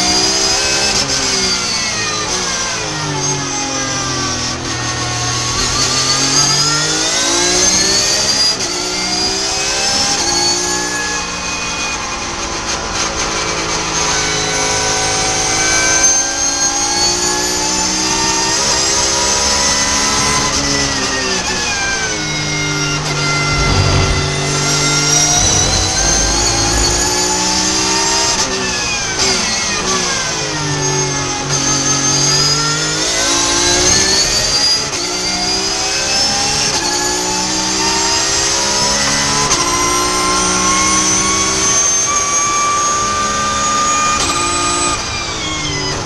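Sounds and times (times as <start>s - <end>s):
race car engine revving: 23.0s - 28.2s.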